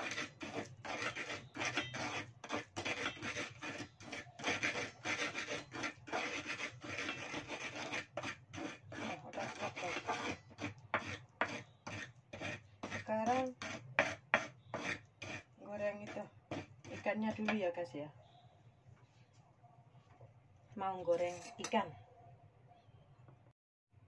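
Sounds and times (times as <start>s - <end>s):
pestle grinding in mortar: 0.0s - 17.6s.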